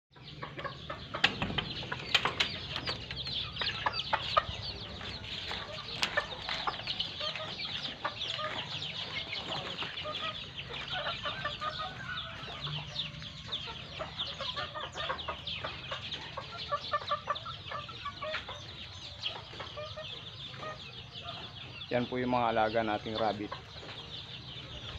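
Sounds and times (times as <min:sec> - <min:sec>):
chickens clucking: 0:00.1 - 0:24.9
chorus of high chirps: 0:00.1 - 0:24.9
sharp knocks and clicks: 0:01.1 - 0:03.8.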